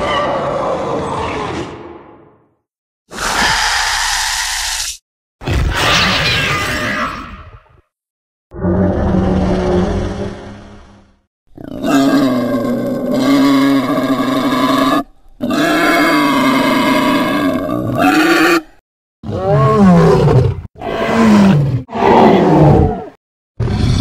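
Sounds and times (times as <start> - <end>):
monster roars: 3.1 - 4.9, 8.5 - 10.7, 19.3 - 24.0.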